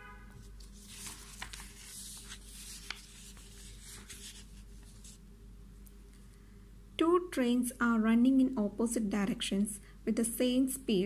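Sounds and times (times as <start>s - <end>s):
faint steady hum: 0.0s - 11.0s
paper and cloth rustling: 0.4s - 5.2s.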